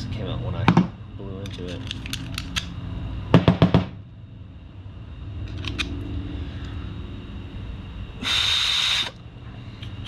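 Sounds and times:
low steady hum: 0.0s - 10.0s
short loud air hiss: 8.2s - 9.2s.

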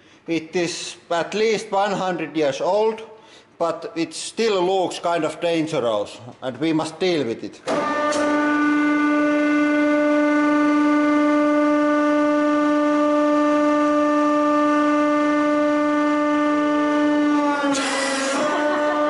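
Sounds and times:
hydraulic pump humming: 7.6s - 19.0s.

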